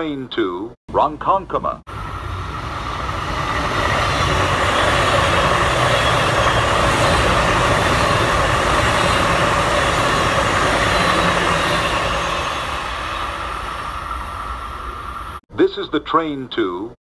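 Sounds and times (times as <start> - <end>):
train wheels rumbling on rails: 1.9 - 15.4.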